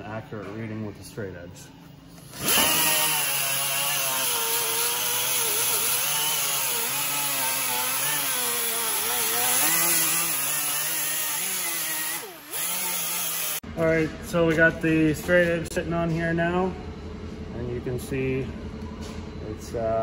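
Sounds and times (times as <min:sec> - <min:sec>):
air die grinder whining on metal: 0:02.2 - 0:13.6.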